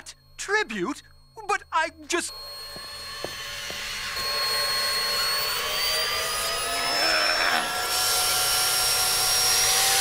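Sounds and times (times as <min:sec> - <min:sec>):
vacuum cleaner whining: 0:02.3 - 0:10.0.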